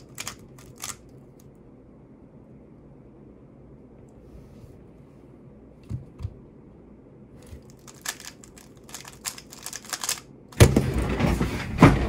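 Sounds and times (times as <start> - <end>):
puzzle cube clicking: 0.0 - 1.1, 7.5 - 10.2.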